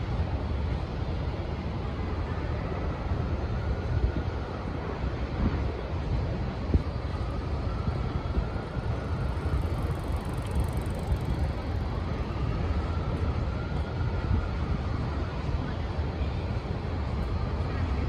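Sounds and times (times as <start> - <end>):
city street traffic rumble: 0.0 - 18.0.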